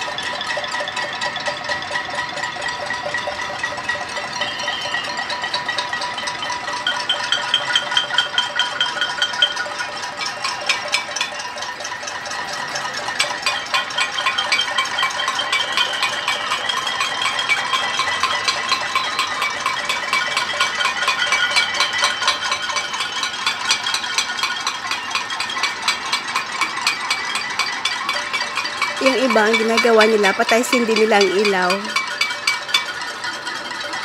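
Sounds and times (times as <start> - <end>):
high held tone: 27.2 - 32.4.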